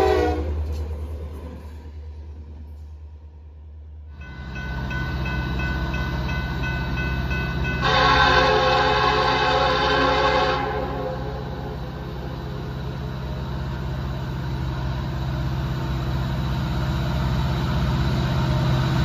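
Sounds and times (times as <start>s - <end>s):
locomotive horn blasts: 0.0s - 0.6s, 7.7s - 11.8s
diesel locomotive engine drone: 0.0s - 19.0s.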